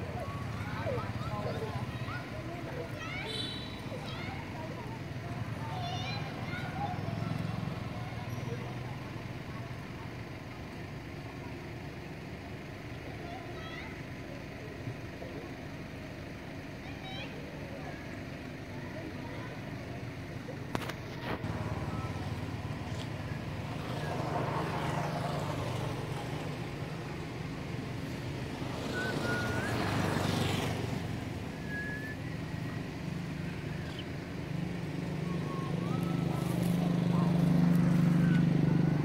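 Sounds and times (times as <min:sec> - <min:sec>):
vehicle engines passing: 0:00.0 - 0:39.0.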